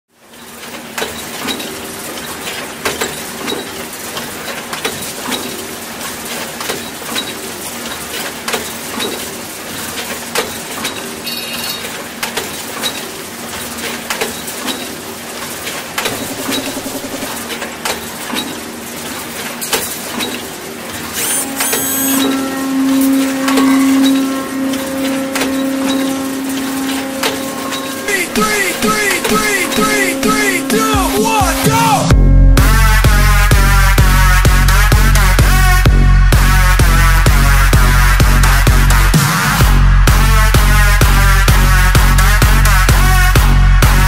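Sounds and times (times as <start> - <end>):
steady low hum: 16.0 - 17.6.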